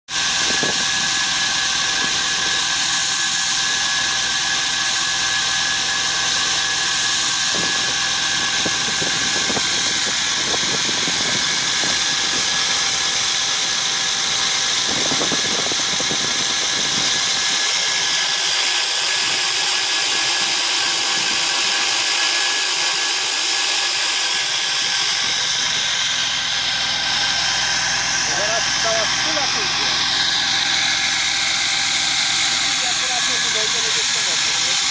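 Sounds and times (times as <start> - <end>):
high machine whine: 0.1 - 34.9.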